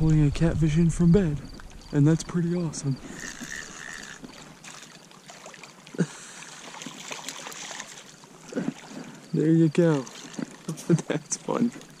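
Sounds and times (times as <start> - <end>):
night insects trilling: 0.0 - 12.0
water splashing and rippling: 0.0 - 12.0.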